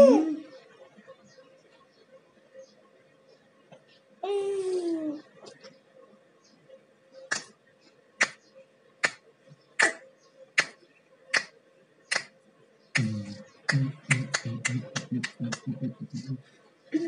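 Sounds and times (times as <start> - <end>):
fingers snapping: 7.3 - 7.5, 8.2 - 8.4, 9.0 - 9.2, 10.6 - 11.5, 12.1 - 12.3
person's voice: 13.0 - 17.0.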